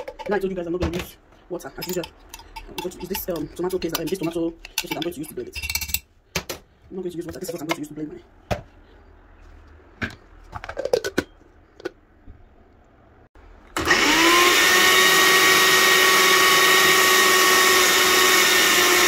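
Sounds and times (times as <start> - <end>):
blender running: 13.7 - 19.0.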